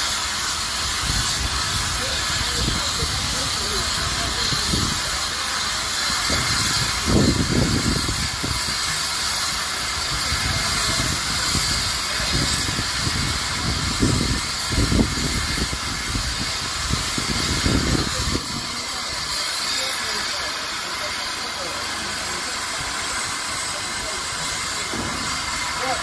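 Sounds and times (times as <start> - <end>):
steam hissing: 0.0 - 26.0.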